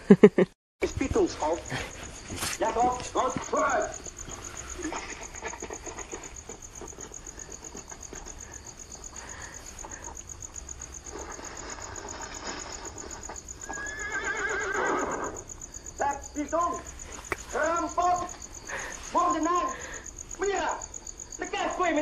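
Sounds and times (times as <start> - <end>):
high insect trill: 0.0 - 22.0
horse whinnying: 13.6 - 15.5.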